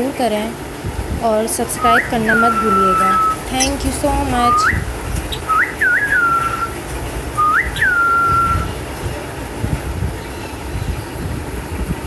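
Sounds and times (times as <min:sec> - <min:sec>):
cockatiel whistling: 0:01.8 - 0:06.8, 0:07.4 - 0:08.8.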